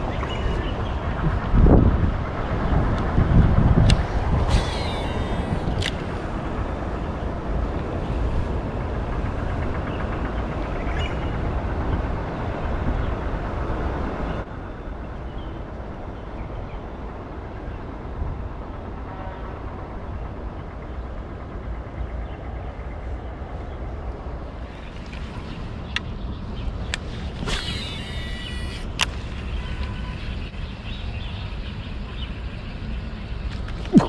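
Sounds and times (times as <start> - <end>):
outdoor rumble and hiss: 0.0 - 34.0.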